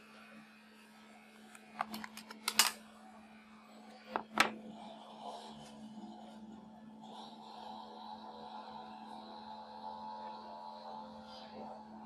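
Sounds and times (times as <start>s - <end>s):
steady low hum: 0.0s - 12.0s
plastic phone cover clicks and snaps: 1.8s - 2.8s.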